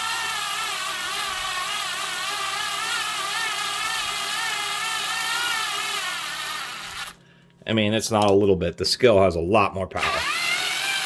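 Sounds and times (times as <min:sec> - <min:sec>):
cordless screwdriver gear whine: 0:00.0 - 0:07.2, 0:10.0 - 0:11.0.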